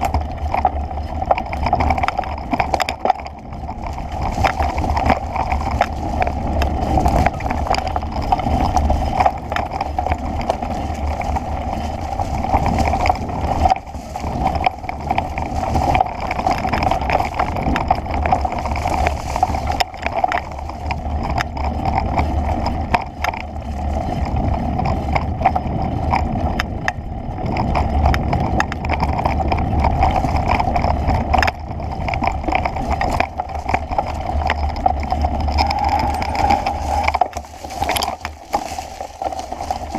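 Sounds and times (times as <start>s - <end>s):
rushing noise: 35.0s - 39.9s.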